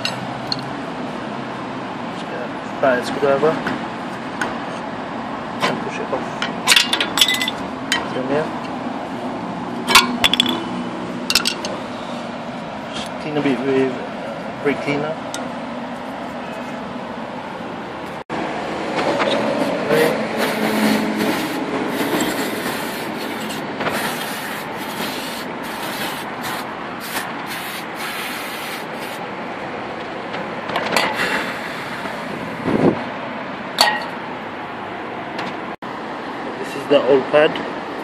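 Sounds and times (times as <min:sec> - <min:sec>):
aerosol spray hissing bursts: 0:20.4 - 0:23.3, 0:23.9 - 0:29.2.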